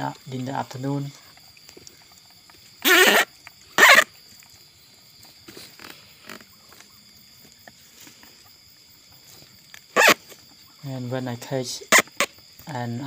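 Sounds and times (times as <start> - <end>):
wavering animal cry: 2.8 - 4.1, 10.0 - 10.2
rustles and scrapes in wood: 5.2 - 10.6.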